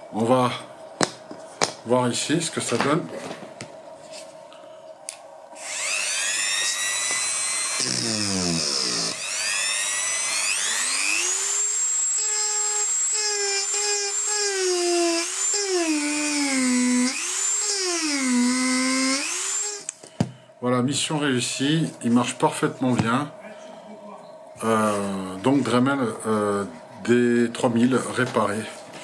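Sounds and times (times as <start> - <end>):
rotary tool motor whine: 5.6 - 19.9.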